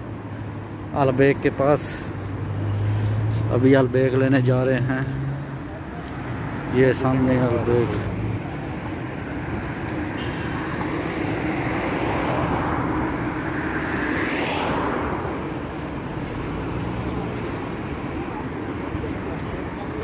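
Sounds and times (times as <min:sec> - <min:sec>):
street traffic: 0:00.0 - 0:20.0
car passing close by: 0:11.1 - 0:17.6.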